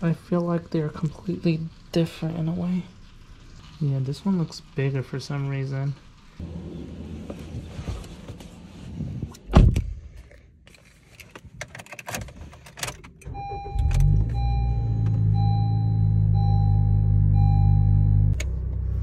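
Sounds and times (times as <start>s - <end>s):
car engine starting and idling: 11.7s - 19.0s.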